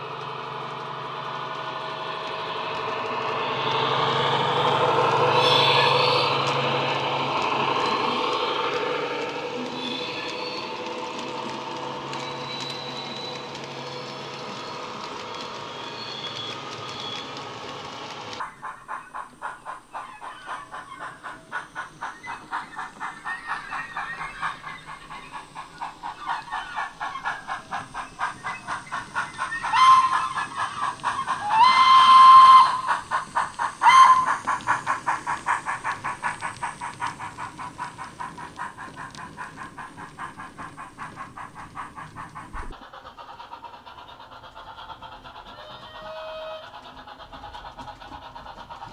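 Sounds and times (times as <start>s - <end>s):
model steam locomotive chuffing: 0.0s - 48.9s
steam whistle blasts: 3.4s - 8.6s, 29.6s - 30.6s, 31.4s - 33.1s, 33.8s - 34.5s.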